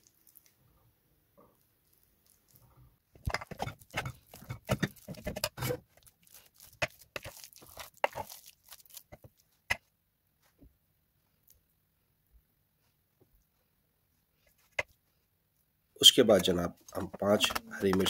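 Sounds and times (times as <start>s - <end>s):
wet squishing of mashed lentils: 0.0s - 0.8s, 1.5s - 10.5s.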